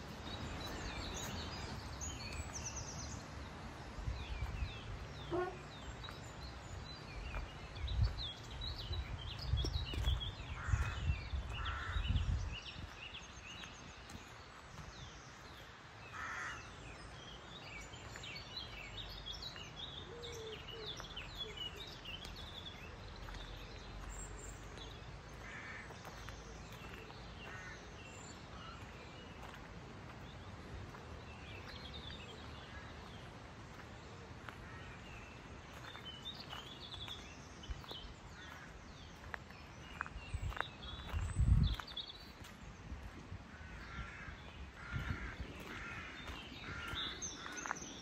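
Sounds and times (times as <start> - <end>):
small birds chirping: 0.0 - 48.0
crows cawing: 11.6 - 12.0, 16.1 - 16.8, 25.4 - 26.2, 27.4 - 27.9, 43.5 - 47.7.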